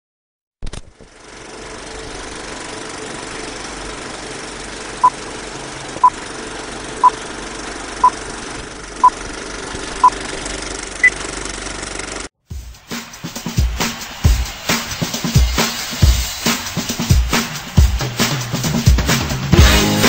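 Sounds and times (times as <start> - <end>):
film projector clattering: 0.7 - 12.3.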